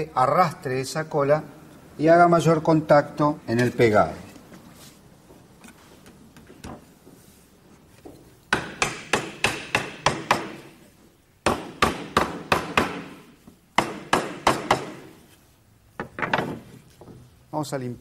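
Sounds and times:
wooden mallet striking wood: 8.5 - 10.7, 11.4 - 15.2.

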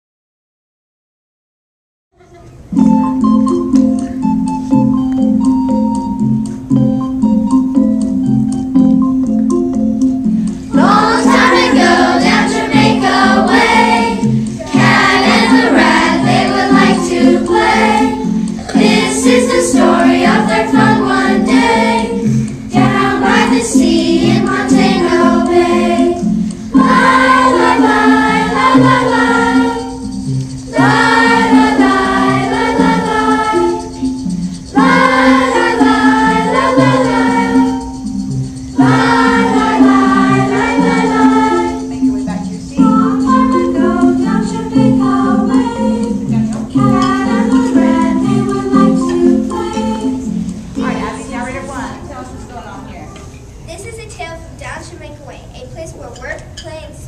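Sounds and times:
instrumental accompaniment: 2.2 - 56.8
children's choir singing: 10.7 - 52.6.

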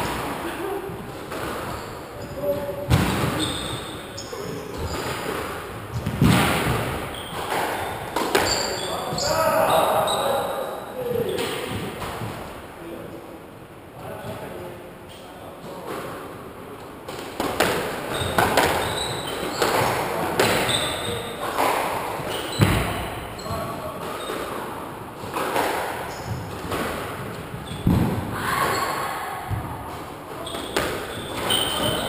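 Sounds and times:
shoes squeaking on wooden floor: 1.0 - 10.4, 18.0 - 32.0
squash ball hits ringing: 1.3 - 9.4, 17.4 - 24.6, 25.2 - 29.7, 30.3 - 32.0
heavier thuds: 26.2 - 28.4.

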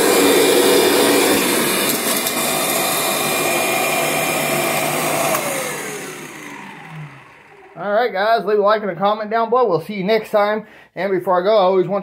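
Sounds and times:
motor winding down whine: 0.0 - 8.1
upright vacuum running: 0.0 - 8.4.

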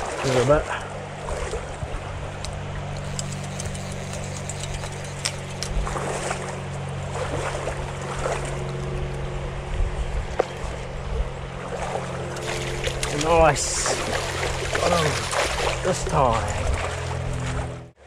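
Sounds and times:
small clicks and knocks: 2.4 - 5.8
river water running over stones: 11.6 - 17.2.

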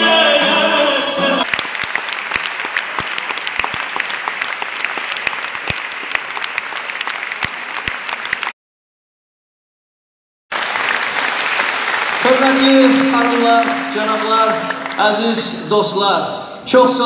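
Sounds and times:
audience applauding: 1.4 - 8.5, 10.5 - 15.2.

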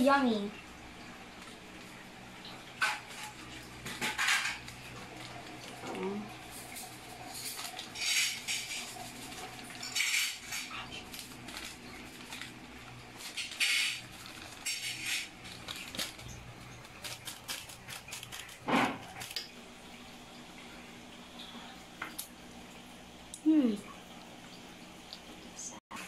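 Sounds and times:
foil sachet crinkling: 4.2 - 19.5.

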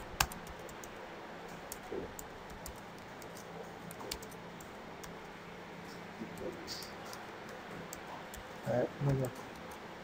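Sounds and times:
keyboard typing clicks: 0.0 - 5.3.

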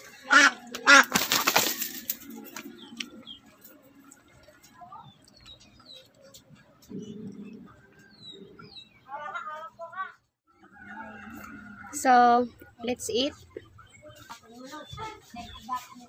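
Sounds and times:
small birds chirping: 2.6 - 10.2, 12.0 - 16.0
dove cooing: 6.8 - 8.7.

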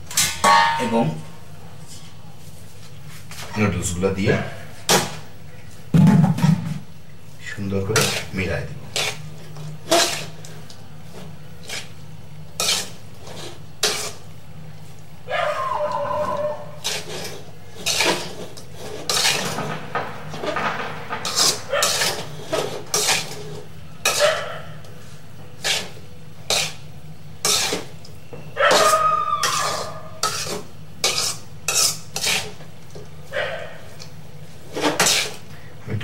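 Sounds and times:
metal spoon scraping steel pan: 8.0 - 9.2, 9.8 - 10.4, 12.6 - 14.2, 16.3 - 24.4, 25.6 - 26.8, 27.4 - 28.0, 28.7 - 32.6, 34.6 - 35.4.

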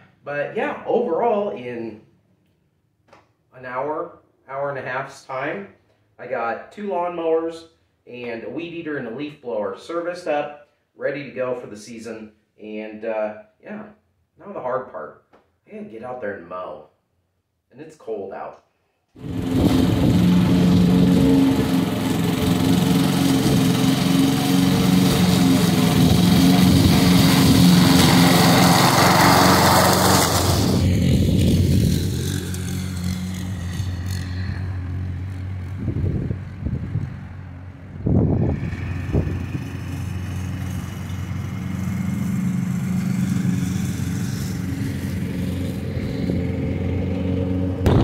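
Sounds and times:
lawn mower engine running: 19.2 - 48.0.

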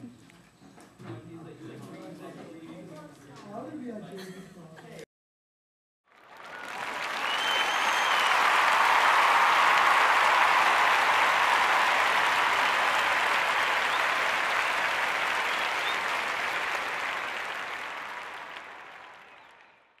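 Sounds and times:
applause: 6.0 - 20.0.

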